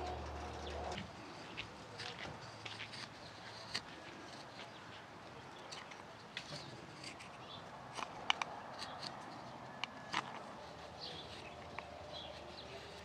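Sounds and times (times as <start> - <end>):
knife paring wood: 2.0 - 4.6, 5.7 - 13.0.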